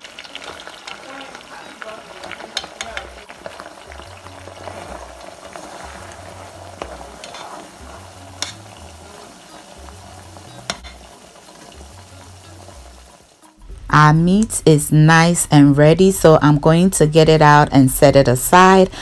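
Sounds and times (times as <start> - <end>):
meat deep-frying in oil: 0.0 - 13.8.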